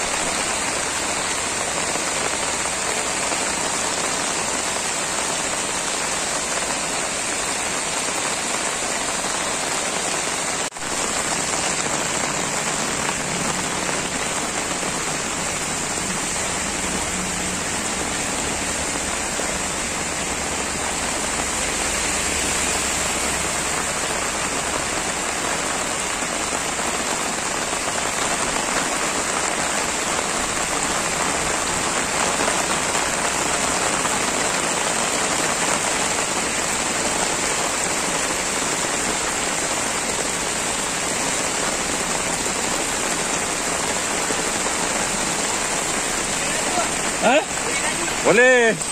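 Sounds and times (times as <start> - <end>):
heavy rain on road: 0.0 - 48.9.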